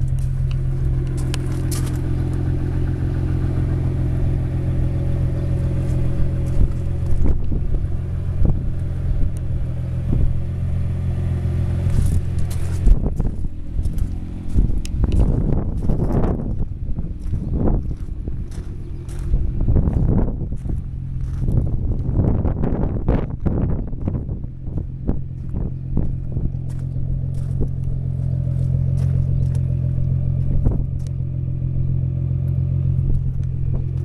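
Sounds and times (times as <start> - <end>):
car engine idling: 0.0 - 34.0
microphone scuffing: 11.9 - 16.6
wind gusts on microphone: 11.9 - 31.1.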